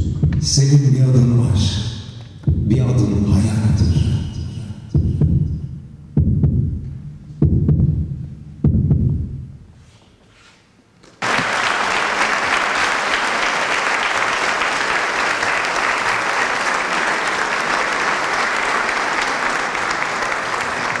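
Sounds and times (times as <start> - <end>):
audience applauding: 11.2 - 21.0.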